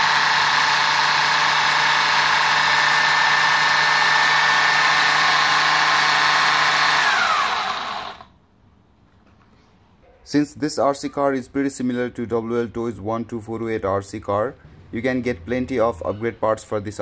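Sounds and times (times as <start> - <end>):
electric motor high whine: 0.0 - 8.3.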